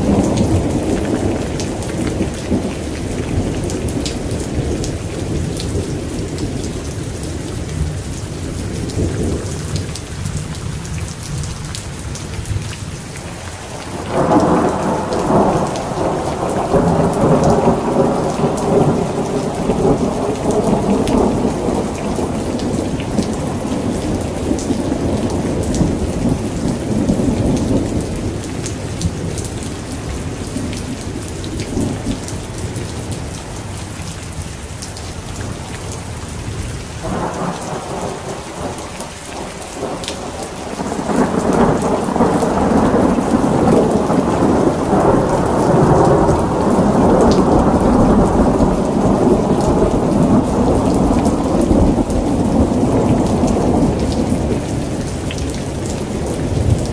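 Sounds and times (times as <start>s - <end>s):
heavy rain hissing: 12.8s - 56.9s
thunder rumbling: 13.7s - 32.4s, 37.0s - 56.9s.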